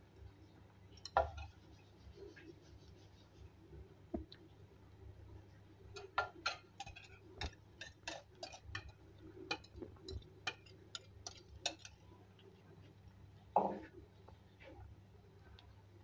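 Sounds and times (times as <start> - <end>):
faint low hum: 0.0 - 16.0
oil popping and crackling: 5.9 - 12.4.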